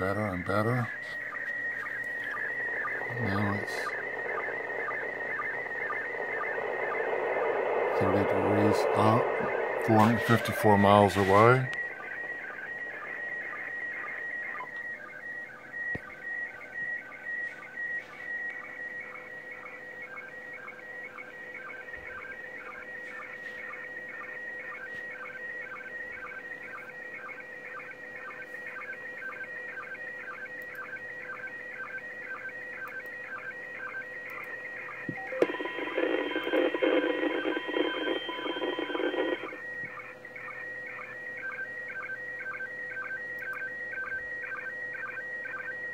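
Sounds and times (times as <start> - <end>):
warbling radio signal tones: 0.0 - 16.3, 34.3 - 42.8
harsh radio noise burst: 2.2 - 12.3, 35.2 - 39.6.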